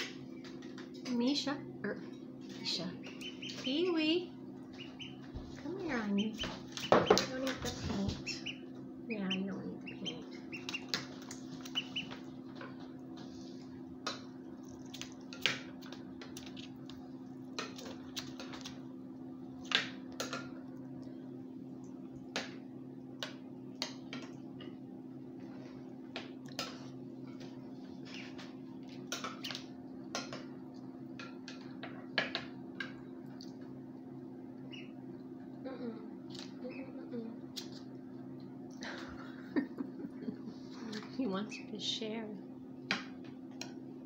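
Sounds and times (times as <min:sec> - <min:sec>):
steady low hum: 0:00.0 - 0:44.0
duckling pecking on paper: 0:04.7 - 0:08.6, 0:09.8 - 0:12.3.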